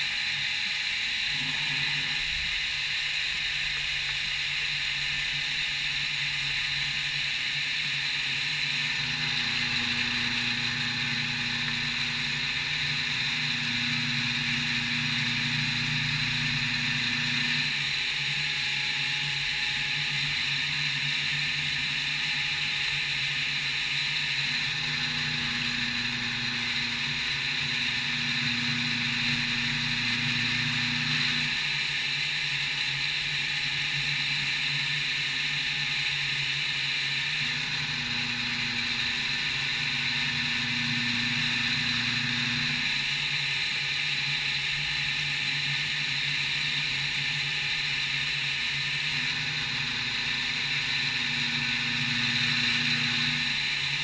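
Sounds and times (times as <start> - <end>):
low machine hum: 0.0 - 36.0, 36.9 - 54.0
milling machine whine: 0.0 - 54.0.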